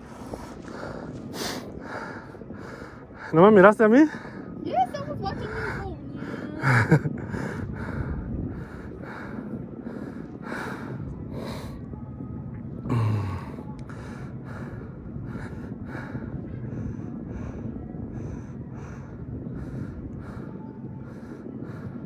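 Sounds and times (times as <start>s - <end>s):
person breathing hard: 0.0s - 3.4s, 12.8s - 22.0s
wind: 0.0s - 22.0s.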